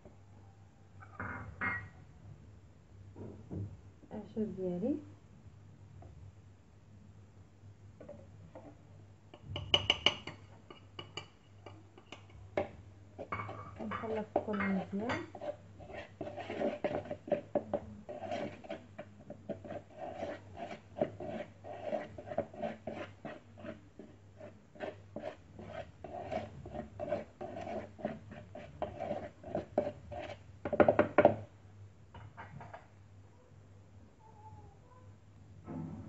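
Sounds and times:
spoon scraping mixing bowl: 0:09.8 - 0:31.4.

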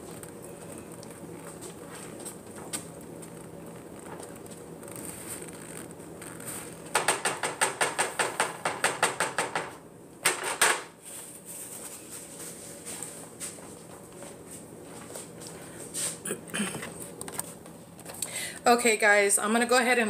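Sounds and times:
utensil knocking on pan: 0:06.9 - 0:10.8.

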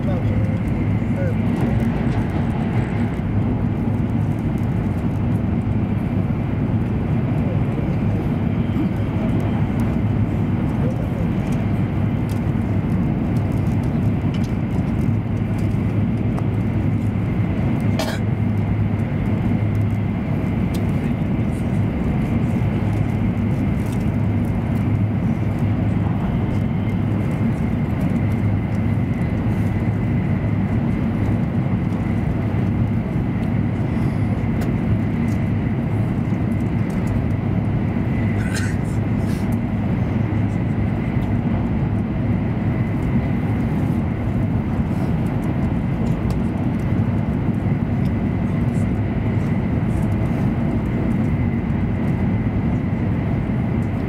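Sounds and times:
train cabin rumble: 0:15.4 - 0:36.3, 0:38.1 - 0:39.4.

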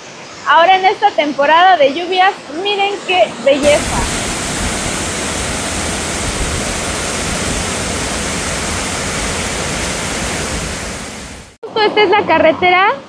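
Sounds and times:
waterfall rushing: 0:03.5 - 0:11.6.

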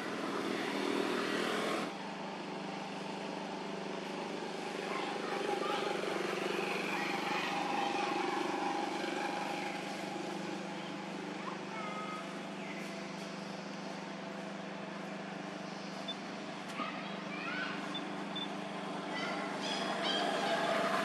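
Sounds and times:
steady motor hum: 0:00.0 - 0:21.0
faint high chirps: 0:15.6 - 0:16.3.

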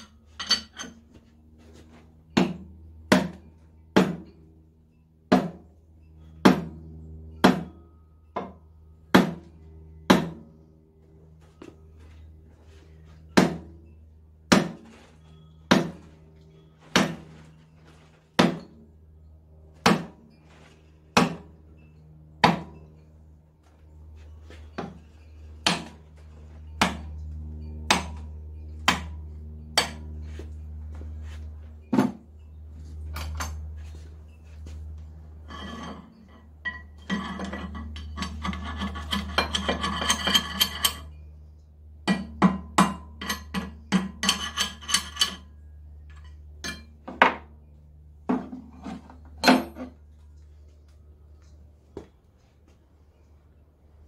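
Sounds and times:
steady low hum: 0:00.0 - 0:54.0
tool striking metal: 0:15.7 - 0:16.1, 0:22.4 - 0:22.9, 0:26.8 - 0:27.2, 0:27.9 - 0:29.2, 0:29.8 - 0:30.1.

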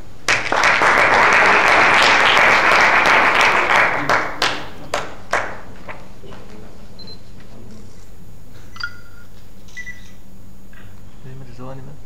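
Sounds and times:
low room hum: 0:00.0 - 0:12.0
faint electronic beeps: 0:08.7 - 0:10.2.

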